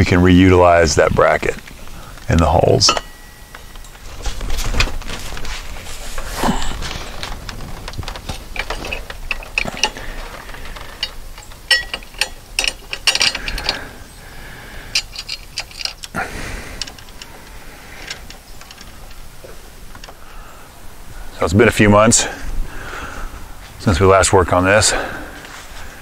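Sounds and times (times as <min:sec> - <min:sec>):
metallic clicks and clanks: 0:02.2 - 0:05.5, 0:06.9 - 0:14.1, 0:14.8 - 0:20.2.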